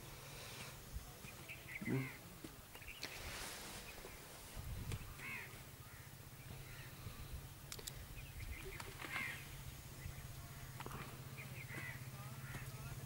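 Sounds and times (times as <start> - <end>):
low steady hum: 0.0 - 13.0
crows cawing: 5.1 - 7.0, 9.0 - 9.4, 11.7 - 12.8.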